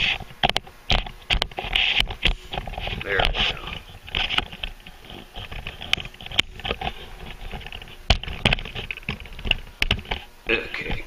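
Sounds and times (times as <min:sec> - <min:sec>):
rustling: 0:00.0 - 0:11.0
tripod clicks and knocks: 0:05.4 - 0:10.2.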